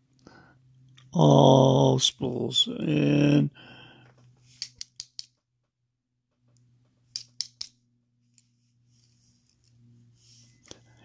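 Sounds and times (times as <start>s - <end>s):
small metallic clicks: 4.6s - 5.4s, 6.5s - 8.5s.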